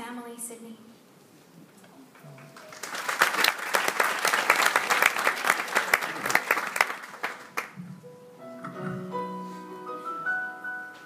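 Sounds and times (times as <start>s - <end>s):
audience applauding: 2.2s - 7.8s.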